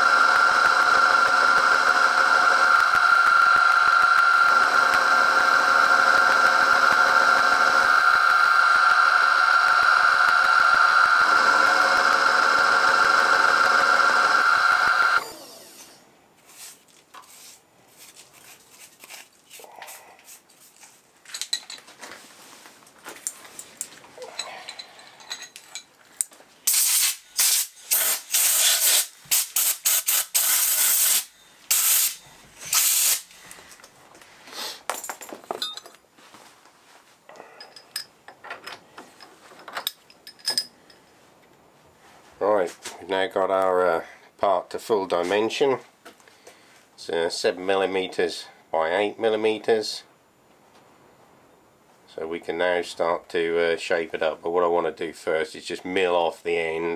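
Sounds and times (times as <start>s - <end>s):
milling machine spindle whine: 0.0s - 15.9s
short hissing bursts: 26.6s - 33.5s.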